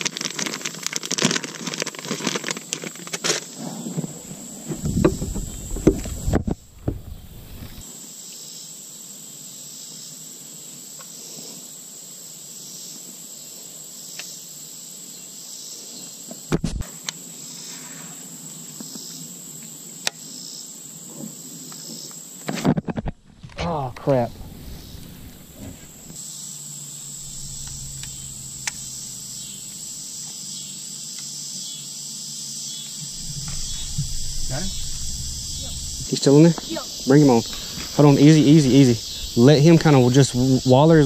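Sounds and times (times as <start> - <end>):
insects droning: 0.0 - 41.0
thump: 33.2 - 38.0.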